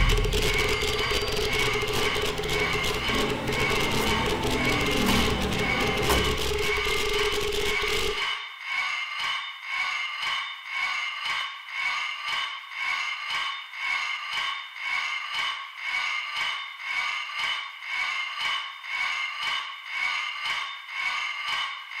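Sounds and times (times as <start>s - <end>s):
pulsing rhythm: 0.0s - 8.2s
sustained high tone: 0.0s - 8.2s.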